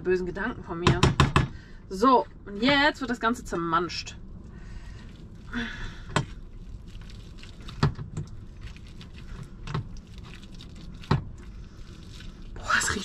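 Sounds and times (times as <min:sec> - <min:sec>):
mashing noise: 0:04.9 - 0:13.0.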